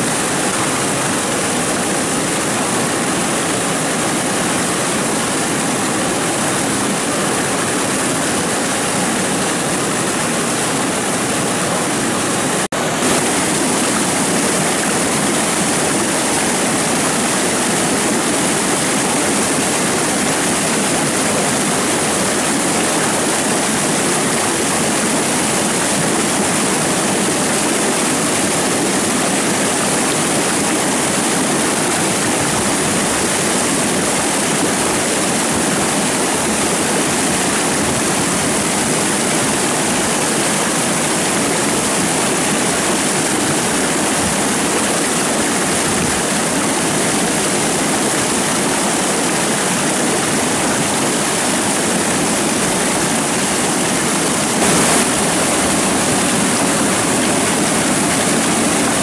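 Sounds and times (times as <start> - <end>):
flowing stream water: 0.0 - 59.0.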